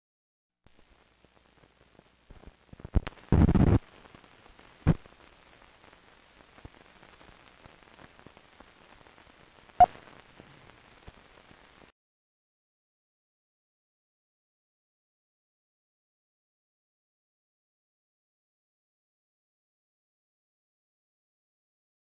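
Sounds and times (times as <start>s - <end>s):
film soundtrack crackle and hiss: 0.7s - 11.9s
sharp pops: 4.8s - 5.1s, 9.7s - 10.3s.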